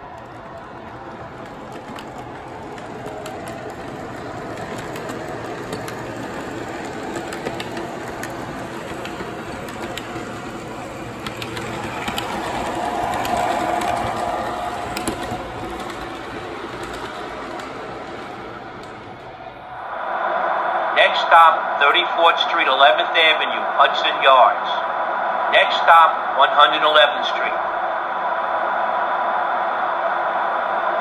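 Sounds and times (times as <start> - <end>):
model train rolling: 0.0 - 19.8.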